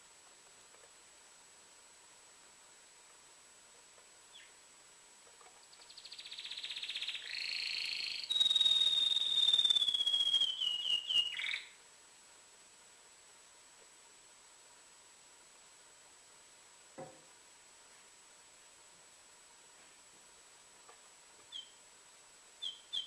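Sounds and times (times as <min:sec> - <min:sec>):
canary singing: 0:04.3 - 0:04.6, 0:05.7 - 0:11.8, 0:21.5 - 0:21.8, 0:22.6 - 0:23.0
faint bird chirp: 0:04.3 - 0:04.6, 0:05.5 - 0:11.8, 0:21.4 - 0:21.8, 0:22.6 - 0:23.0.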